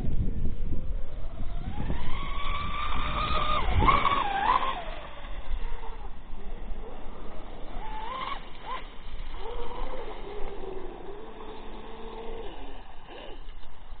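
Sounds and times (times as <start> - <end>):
hiss of wind and water: 0.8 - 14.0
electric motor whine: 0.9 - 13.7.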